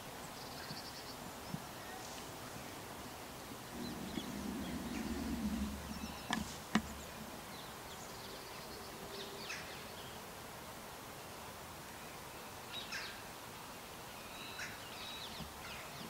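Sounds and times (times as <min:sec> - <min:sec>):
faint bird chirps: 0:03.6 - 0:10.2.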